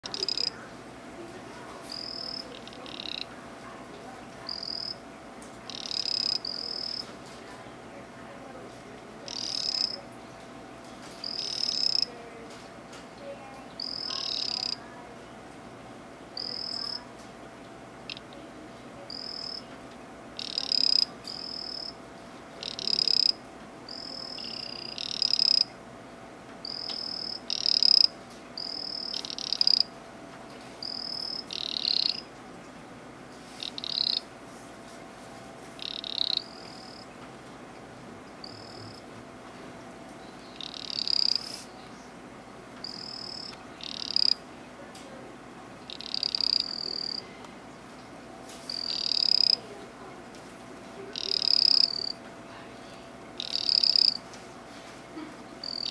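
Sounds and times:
frog trilled calls: 0.0 - 0.6, 1.9 - 3.3, 4.5 - 5.0, 5.7 - 7.1, 9.3 - 10.0, 11.2 - 12.1, 13.8 - 14.8, 16.4 - 17.0, 18.1 - 18.4, 19.1 - 19.6, 20.4 - 22.0, 22.6 - 25.7, 26.6 - 29.9, 30.8 - 32.3, 33.6 - 34.3, 35.8 - 37.1, 38.4 - 39.1, 40.5 - 41.6, 42.8 - 44.4, 45.8 - 47.2, 48.7 - 49.6, 51.1 - 52.2, 53.4 - 54.2, 55.6 - 55.9
faint steady hum: 0.0 - 55.9.

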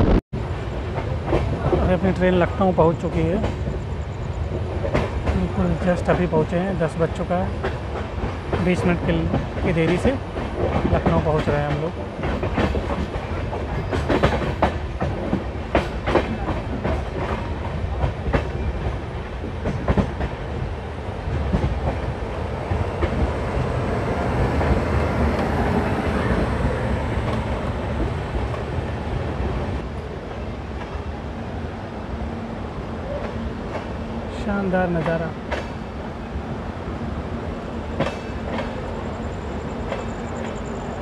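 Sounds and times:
train rumbling on rails: 0.0 - 41.0
train wheels clacking over rail joints: 7.6 - 20.4, 21.3 - 22.1, 37.9 - 38.8.

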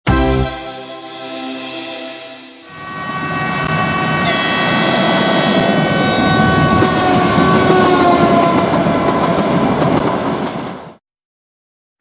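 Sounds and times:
train horn: 2.3 - 9.3
train wheels clattering on rails: 6.5 - 11.0.

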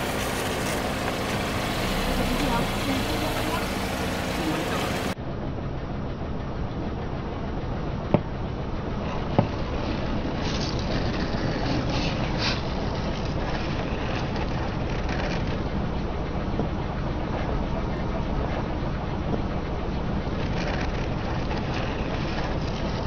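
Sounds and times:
low car rumble: 0.0 - 23.0.

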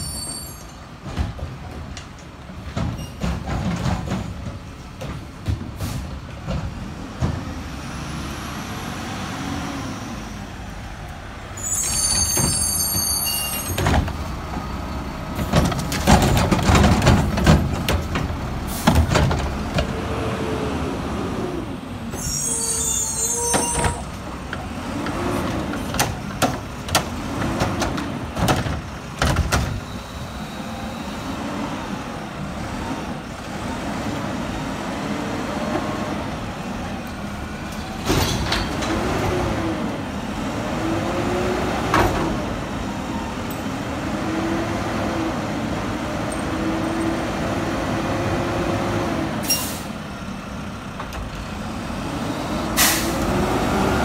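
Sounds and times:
metal clanks and bangs: 2.6 - 7.5, 15.4 - 19.9, 37.7 - 39.0
air brake hiss: 49.4 - 50.0, 52.8 - 53.2.

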